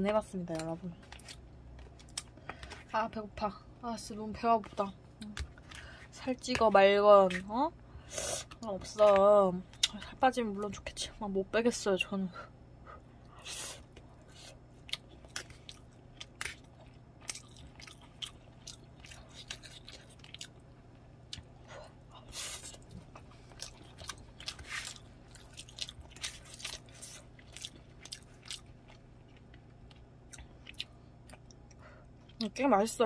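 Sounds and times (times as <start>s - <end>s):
person chewing food: 0.5s - 2.9s, 12.9s - 32.4s.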